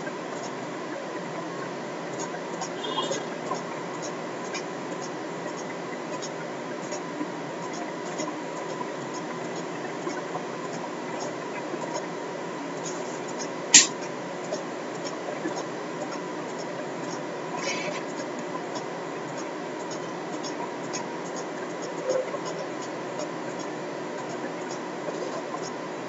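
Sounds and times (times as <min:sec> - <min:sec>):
thin electrical tone: 0:00.0 - 0:26.0
computer mouse clicks: 0:12.8 - 0:14.1.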